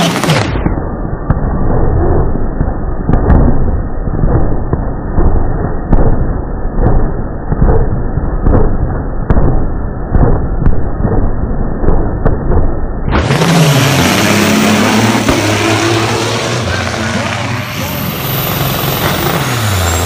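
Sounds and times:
diesel truck engines revving: 0.0s - 0.7s, 13.1s - 20.0s
sharp cracks: 0.0s - 17.6s.

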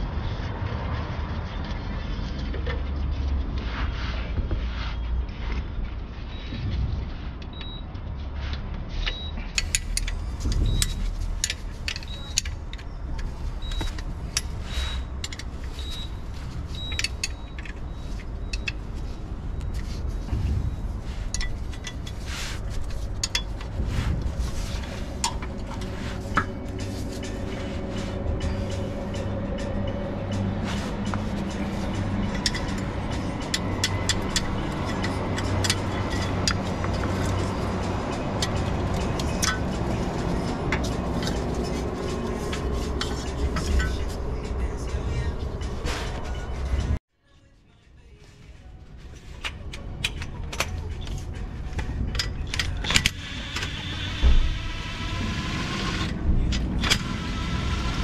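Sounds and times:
steady low rumble: 3.1s - 47.0s, 56.1s - 56.9s
steady low hum: 5.7s - 47.0s
small metallic clicks and taps: 9.1s - 14.5s.

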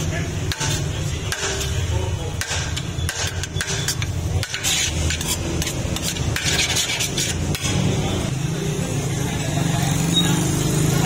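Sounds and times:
metal scoop scraping metal pot: 2.7s - 8.0s.

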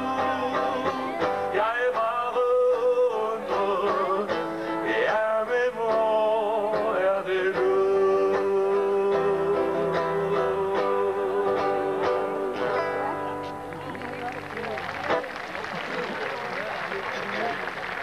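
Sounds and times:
man singing: 0.0s - 13.0s
acoustic guitar: 0.0s - 18.0s.

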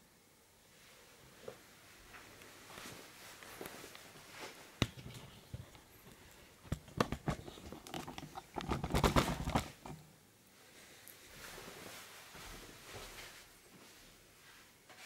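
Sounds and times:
handling clicks and knocks: 6.6s - 10.0s.

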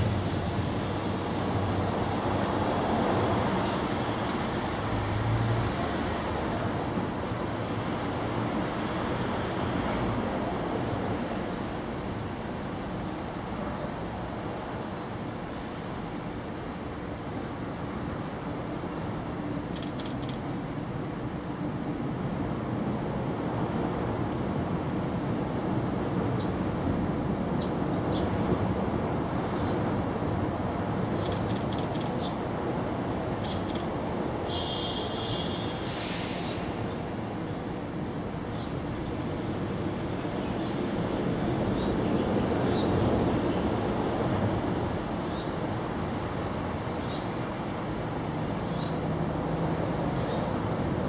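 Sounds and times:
constant hiss: 0.0s - 5.5s, 10.7s - 18.3s.

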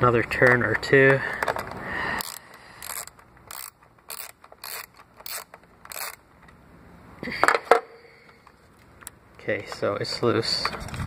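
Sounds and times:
socket ratchet clicking: 2.2s - 6.2s.

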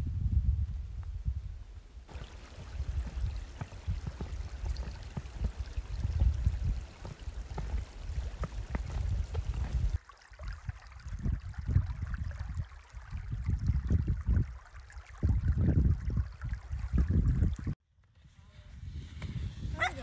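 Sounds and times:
wind buffeting microphone: 0.0s - 20.0s
creek running over rocks: 2.1s - 17.8s.

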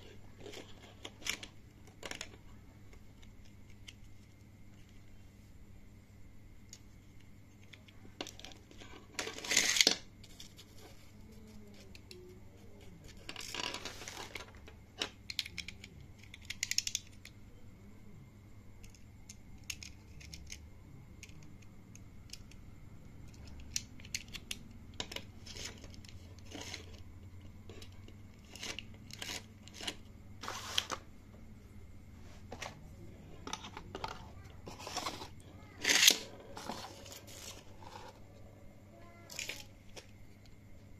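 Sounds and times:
plastic ripcord rasps: 9.2s - 10.0s, 28.4s - 30.9s, 33.4s - 37.9s
plastic toy clicks: 15.0s - 17.3s, 18.8s - 20.6s.

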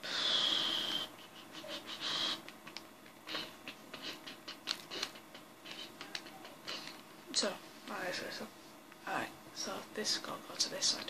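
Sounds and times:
breathy exhale: 0.0s - 1.1s.

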